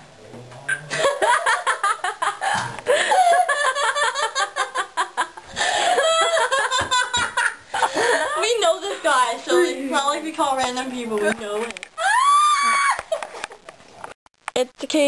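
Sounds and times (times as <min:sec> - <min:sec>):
girl laughing: 0:00.9 - 0:08.6.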